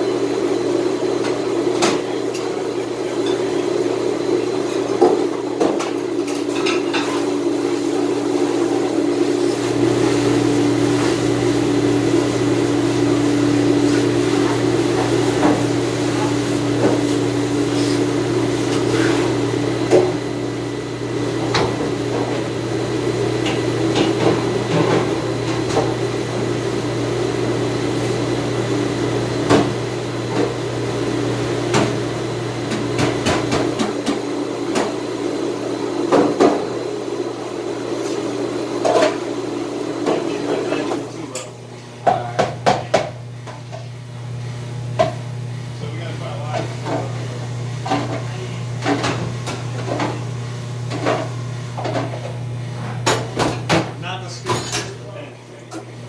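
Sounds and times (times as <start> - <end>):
dish machinery humming: 0.0 - 56.0
dishes and racks clattering: 1.2 - 3.6, 4.7 - 7.4, 50.9 - 55.9.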